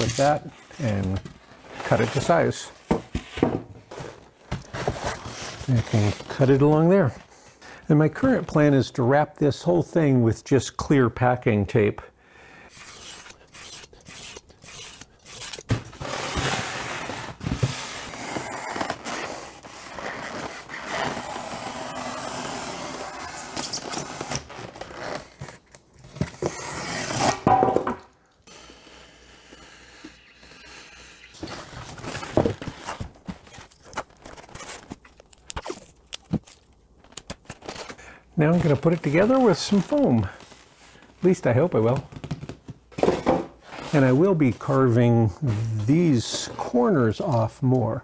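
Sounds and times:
handling noises and clicks: 32.1s - 40.2s.

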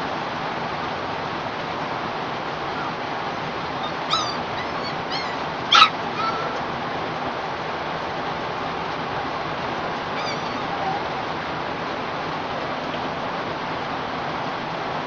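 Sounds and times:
dog whimpering and yelping: 2.6s - 3.0s, 3.6s - 6.7s, 10.1s - 11.4s.

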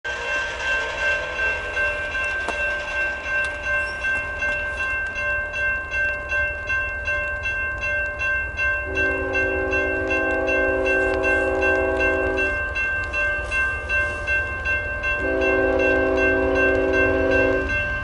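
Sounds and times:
crossing bell ringing: 0.1s - 18.0s
locomotive horn: 8.9s - 12.5s, 15.2s - 17.7s.

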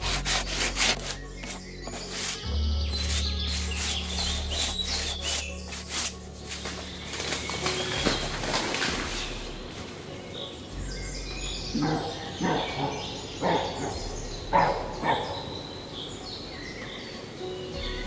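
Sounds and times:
birds chirping and singing: 0.0s - 18.0s
dog barking: 11.7s - 15.6s.

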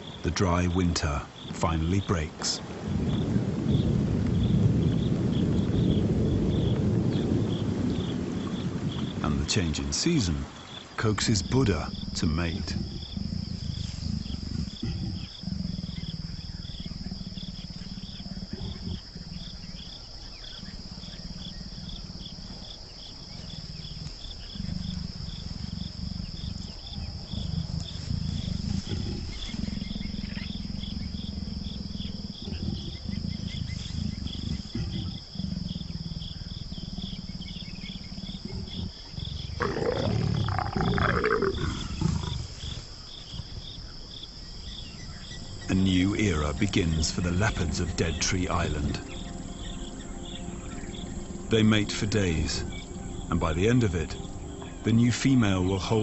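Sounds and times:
insects chirping: 0.0s - 56.0s
leopards growling: 5.6s - 56.0s
leopard snarl: 11.5s - 43.9s.

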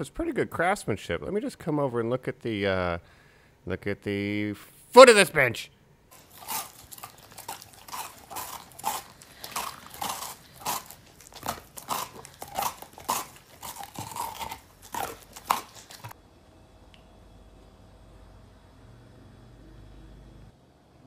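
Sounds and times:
dog crunching a treat: 6.1s - 16.2s.

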